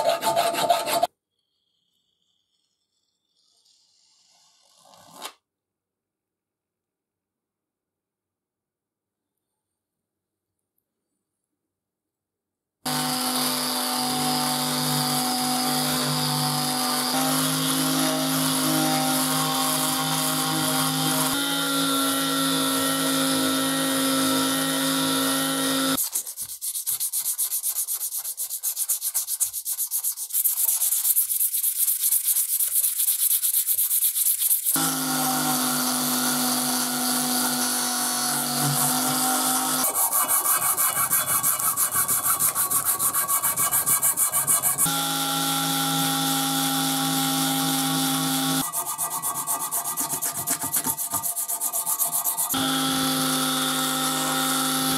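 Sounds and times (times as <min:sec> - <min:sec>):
hand sanding strokes: 0:00.0 - 0:01.1, 0:14.6 - 0:34.8, 0:38.8 - 0:45.0, 0:46.5 - 0:54.9
electric sander buzzing: 0:12.9 - 0:26.0, 0:34.8 - 0:51.2, 0:52.0 - 0:54.9.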